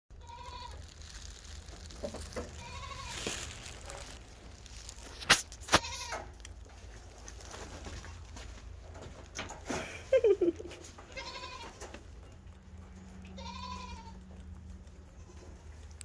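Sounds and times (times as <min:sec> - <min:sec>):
farm animal bleating: 0:00.2 - 0:01.0, 0:02.2 - 0:03.9, 0:05.7 - 0:06.4, 0:11.0 - 0:12.2, 0:12.8 - 0:16.0.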